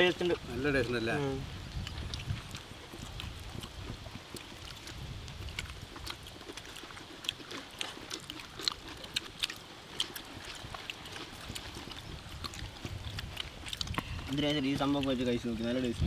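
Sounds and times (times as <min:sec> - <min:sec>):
low steady rumble: 0:00.0 - 0:16.0
chewing smacks: 0:01.7 - 0:16.0
fingers picking at food: 0:01.7 - 0:16.0.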